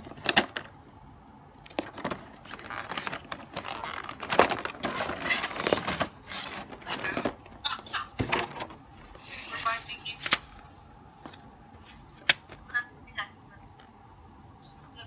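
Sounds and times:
plastic packaging crinkling: 0.0s - 0.8s, 1.6s - 7.6s.

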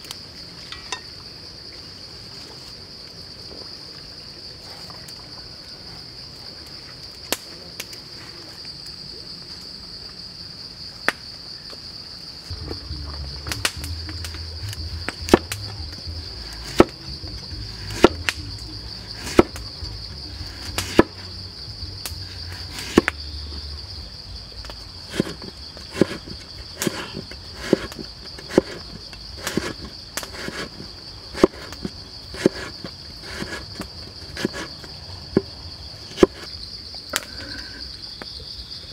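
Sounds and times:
high buzz of insects: 7.1s - 38.9s
cleaver chopping carrot on board: 19.2s - 19.6s, 20.8s - 21.1s.

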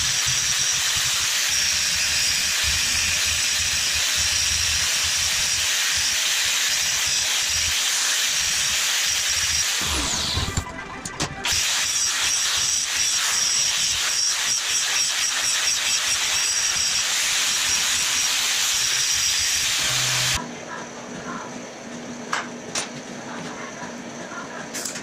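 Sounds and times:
angle grinder grinding steel: 0.0s - 10.6s, 11.4s - 20.4s.

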